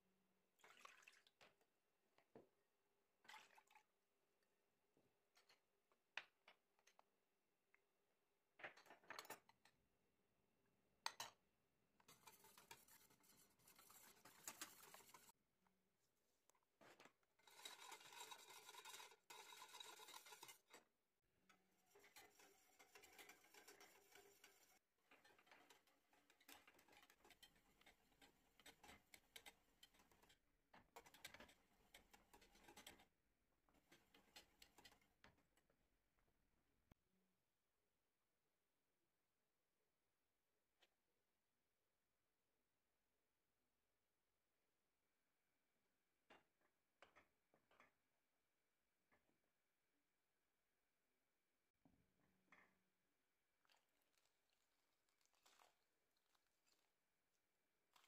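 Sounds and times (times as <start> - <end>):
whisk stirring liquid in saucepan: 12.0 - 15.4, 17.4 - 35.6, 53.6 - 58.0.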